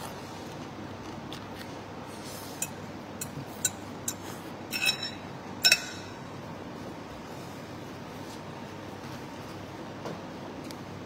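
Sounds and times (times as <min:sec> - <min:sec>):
steady background hiss: 0:00.0 - 0:11.0
tableware clinking on ceramic bowl: 0:03.2 - 0:06.3.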